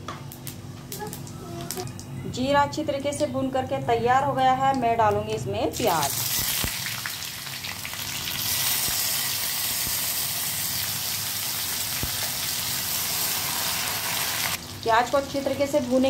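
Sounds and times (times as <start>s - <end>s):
onion sizzling in oil: 5.8s - 16.0s.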